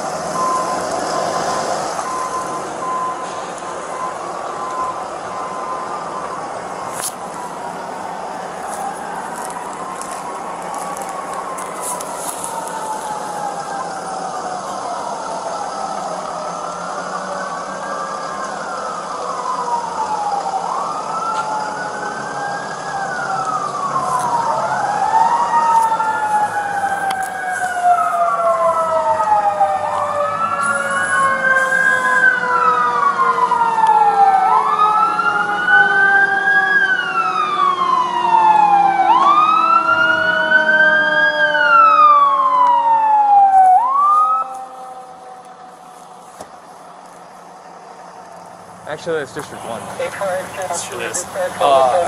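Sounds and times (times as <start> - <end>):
fire engine siren wailing: 0.0 - 52.0
siren tone sliding downward: 18.7 - 45.8.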